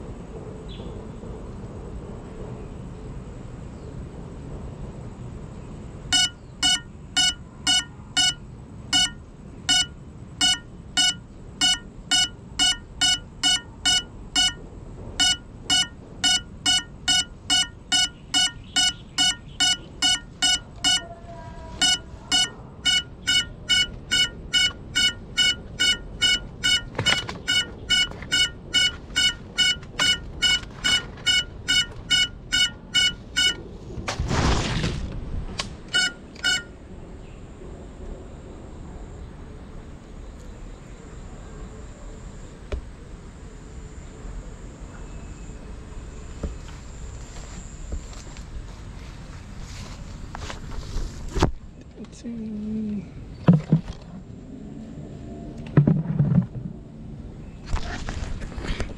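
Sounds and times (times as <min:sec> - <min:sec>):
drone alarm beeping: 0:06.1 - 0:33.7, 0:35.9 - 0:36.8.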